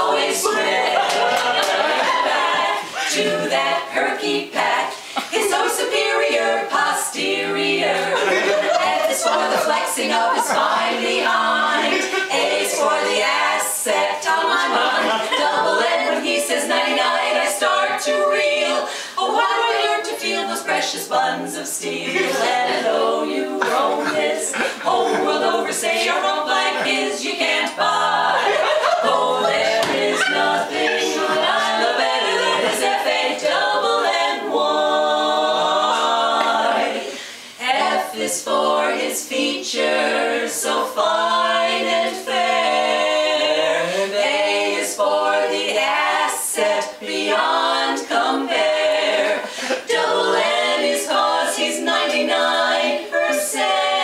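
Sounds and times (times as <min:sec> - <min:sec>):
women singing in close harmony: 0:00.0 - 0:54.0.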